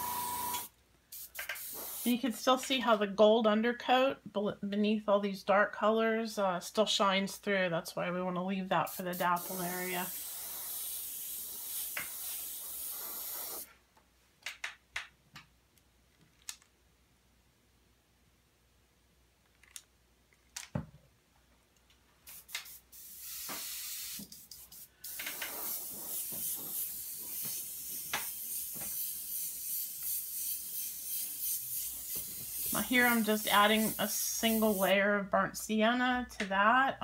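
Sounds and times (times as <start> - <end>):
airbrush spraying hiss: 0.0 - 2.3, 8.8 - 13.7, 22.3 - 35.0
small clicks: 19.4 - 20.7.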